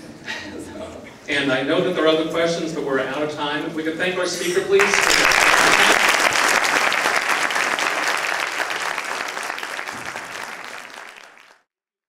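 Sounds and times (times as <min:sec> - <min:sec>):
audience applauding: 0:04.8 - 0:11.6.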